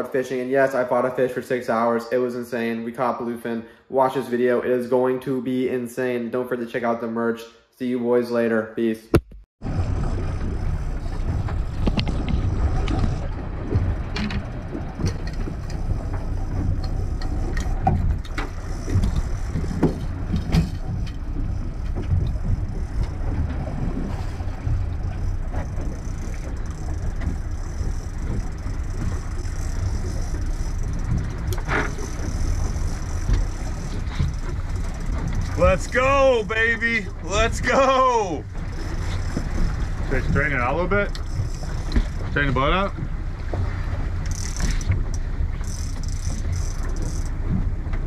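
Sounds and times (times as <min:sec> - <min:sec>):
wind buffeting microphone: 0:09.6 - 0:37.7
outboard engine running: 0:09.6 - 0:48.0
sharp clicks and knocks: 0:11.2 - 0:23.6, 0:24.6 - 0:35.6, 0:41.1 - 0:43.6.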